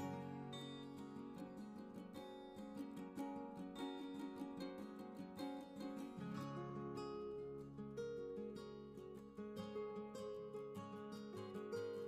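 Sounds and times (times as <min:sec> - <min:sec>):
plucked guitar tune: 0:00.0 - 0:12.0.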